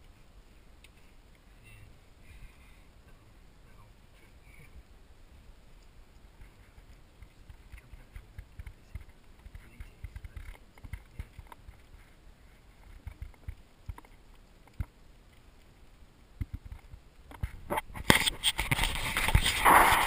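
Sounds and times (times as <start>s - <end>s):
dog rustling against camera: 17.4s - 20.0s.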